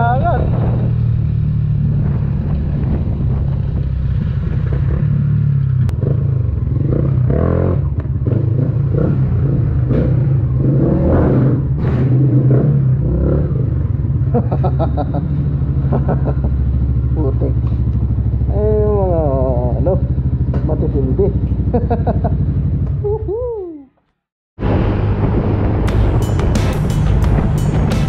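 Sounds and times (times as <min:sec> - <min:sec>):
motorcycle engine running and idling: 0:14.0 - 0:23.5.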